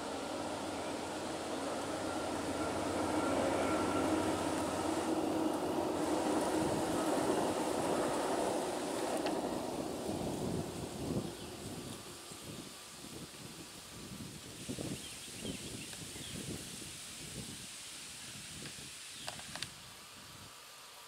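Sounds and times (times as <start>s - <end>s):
train wheels rumbling on bridge: 0.0s - 12.8s.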